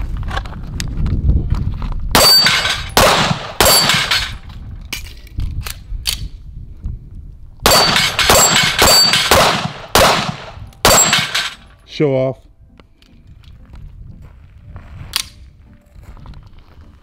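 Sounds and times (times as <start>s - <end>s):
pistol shots: 2.2s - 4.4s, 7.6s - 11.6s.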